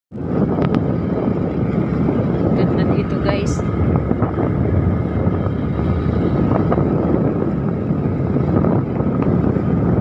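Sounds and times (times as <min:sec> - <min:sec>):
wind rushing over microphone: 0:00.1 - 0:10.0
motorcycle engine running: 0:00.2 - 0:10.0.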